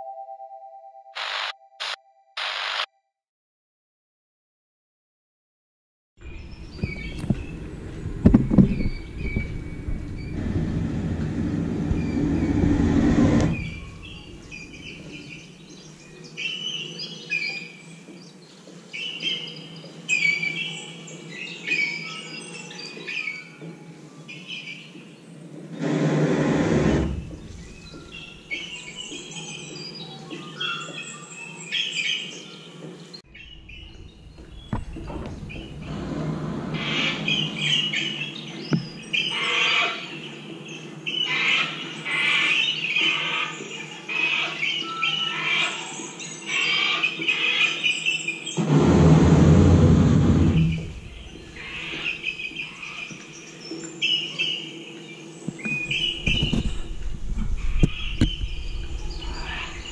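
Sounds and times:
birdsong through loudspeakers: 6.3 - 12.8, 13.5 - 25.6, 27.3 - 35.8, 36.9 - 48.6, 50.9 - 56.9, 57.8 - 59.9
loud rushing noise: 48.6 - 52.1.

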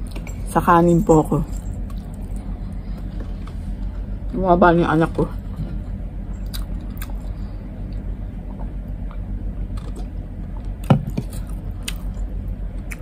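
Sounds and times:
steady low hum: 0.0 - 13.0
eating by hand: 5.6 - 13.0.

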